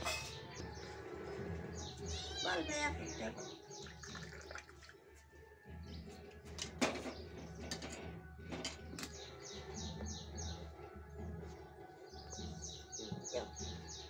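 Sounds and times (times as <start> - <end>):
small birds chirping: 0.0 - 14.0.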